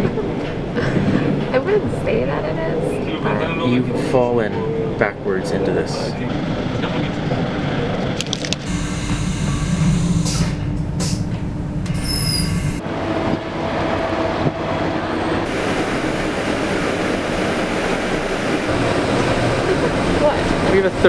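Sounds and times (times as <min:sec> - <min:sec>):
train rumble inside carriage: 0:00.0 - 0:21.0
high wheel squeal: 0:11.9 - 0:12.8.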